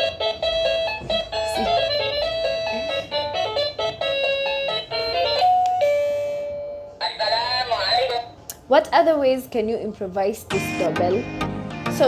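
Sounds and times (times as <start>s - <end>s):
doorbell chime electronic tune: 4.1s - 7.0s.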